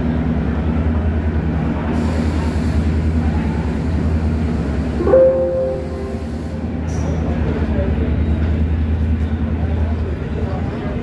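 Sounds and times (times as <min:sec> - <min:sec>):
train diesel engine hum: 0:00.0 - 0:11.0.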